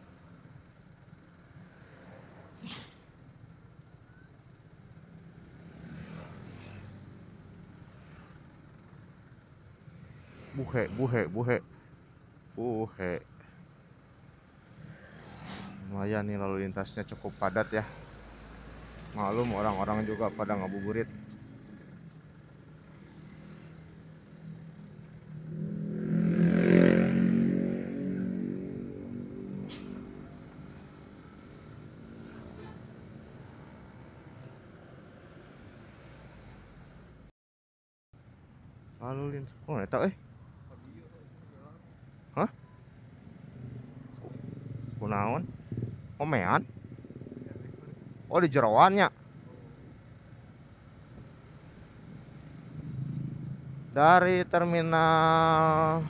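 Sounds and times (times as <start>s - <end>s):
motorcycle engine at low speed: 18.0s - 32.7s, 42.7s - 48.6s, 49.2s - 54.4s.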